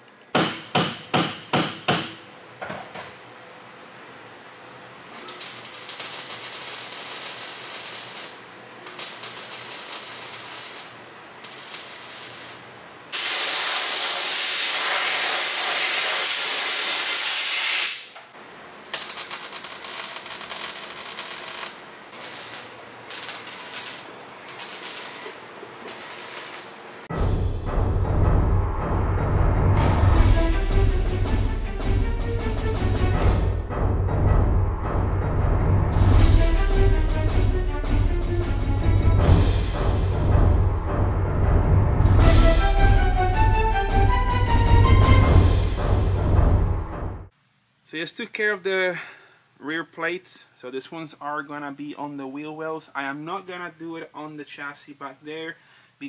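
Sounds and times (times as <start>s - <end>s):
arc welding crackling sizzle: 4.9s - 27.1s
welding hiss: 5.2s - 18.2s, 19.0s - 26.9s.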